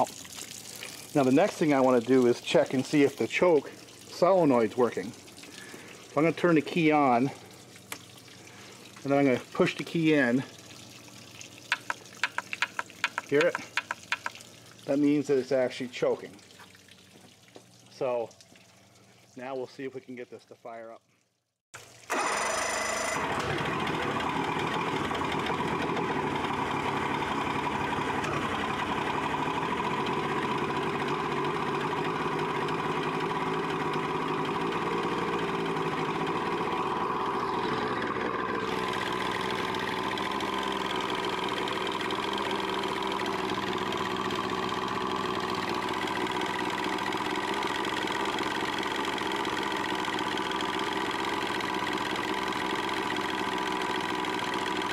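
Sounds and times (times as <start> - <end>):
outboard motor running: 0.0 - 19.4, 21.8 - 54.9
electric starter cranking: 11.7 - 14.3, 21.8 - 54.9
engine internal rattle: 11.7 - 14.4, 22.1 - 54.9.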